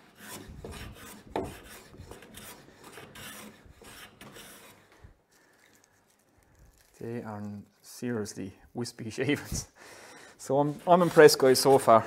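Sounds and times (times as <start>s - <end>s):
hand plane cutting wood: 0.0s - 5.0s, 10.6s - 12.0s.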